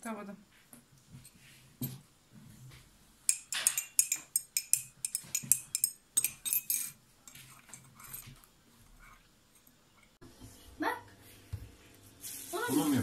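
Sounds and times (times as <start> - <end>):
cutlery clinking on plates: 3.3 - 8.4.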